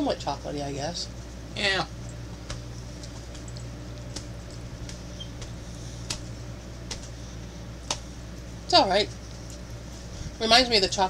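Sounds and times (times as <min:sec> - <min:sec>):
low electrical hum: 0:00.0 - 0:11.0.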